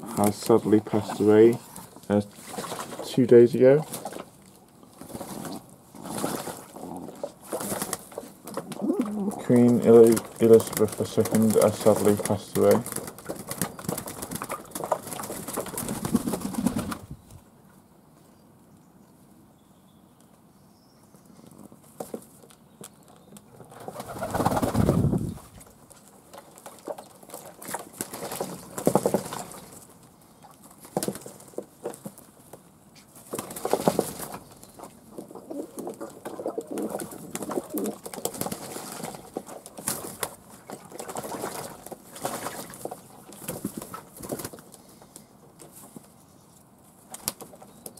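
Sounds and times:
wings flapping: 0:07.4 - 0:17.2, 0:23.7 - 0:25.7, 0:26.6 - 0:29.8, 0:33.2 - 0:34.5, 0:35.1 - 0:44.8
pigeons cooing: 0:08.6 - 0:09.7, 0:35.1 - 0:38.5.

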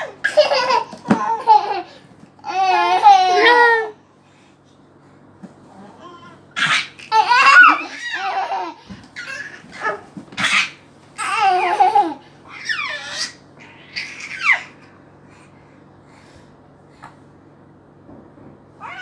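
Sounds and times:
babies laughing: 0:00.0 - 0:03.9, 0:06.6 - 0:14.9.

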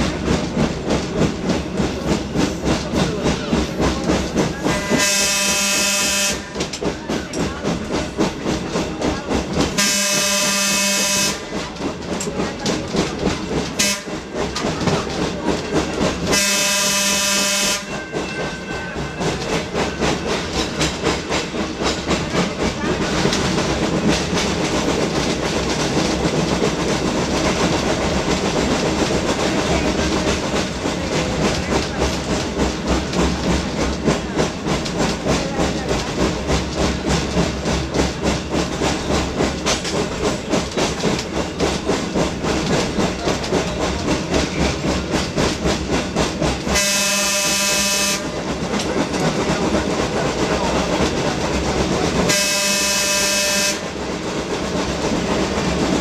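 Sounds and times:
trolley clattering on rails: 0:00.0 - 0:56.0
trolley whistle blasts: 0:46.8 - 0:48.3, 0:52.3 - 0:53.8.

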